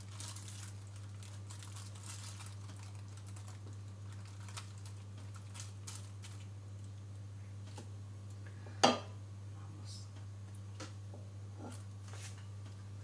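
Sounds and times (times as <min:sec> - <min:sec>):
plastic film crinkling: 0:00.0 - 0:07.0
steady low hum: 0:00.0 - 0:13.0.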